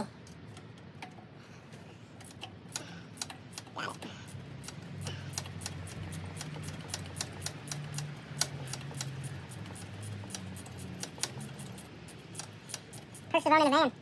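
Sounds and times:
ratchet wrench clicking: 2.2s - 13.4s.

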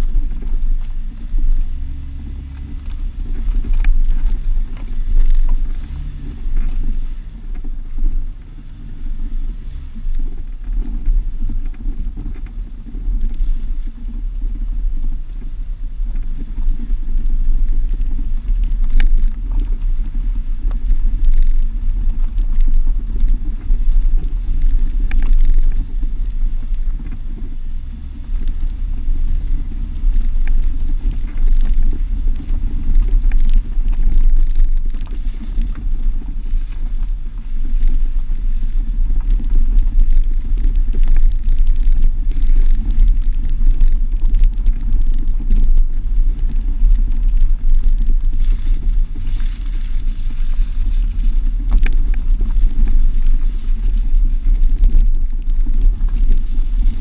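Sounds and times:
engine and tyres rumbling: 0.0s - 57.0s
wind buffeting microphone: 0.0s - 57.0s.

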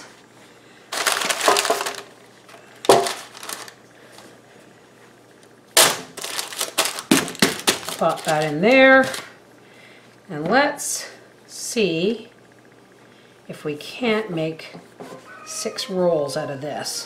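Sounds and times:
parchment paper crinkling: 0.9s - 2.1s, 2.9s - 4.2s, 6.2s - 9.3s.

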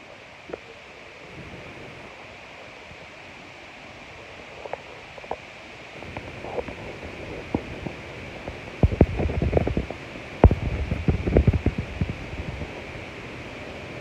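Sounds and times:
wind buffeting microphone: 4.8s - 14.0s
wind rushing: 6.0s - 13.2s.

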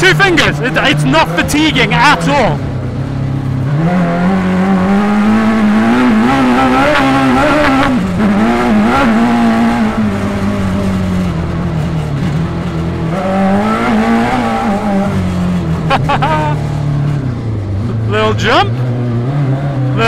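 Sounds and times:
motorcycle engine revving: 0.0s - 20.0s.

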